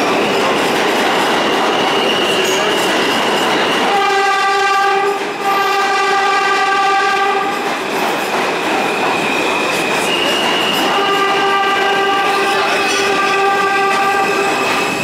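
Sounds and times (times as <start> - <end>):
subway train wheels rumbling: 0.0 - 15.0
train horn blasts: 3.9 - 7.6, 10.7 - 14.8.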